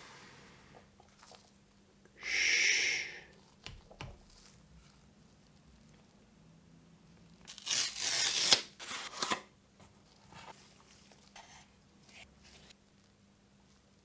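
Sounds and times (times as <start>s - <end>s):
cardboard tearing: 7.5s - 9.4s.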